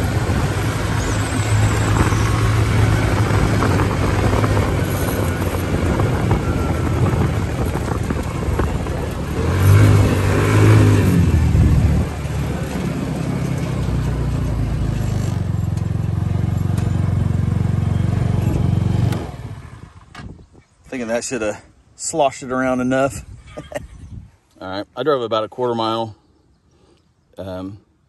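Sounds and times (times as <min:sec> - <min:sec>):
tyres driving over gravel: 0:00.0 - 0:17.4
go-kart engine running: 0:00.0 - 0:20.1.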